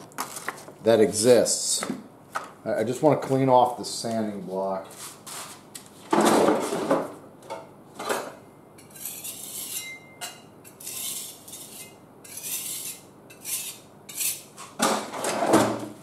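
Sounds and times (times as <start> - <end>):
scratchy high-pitched scraping: 8.8 - 9.9, 10.7 - 14.5.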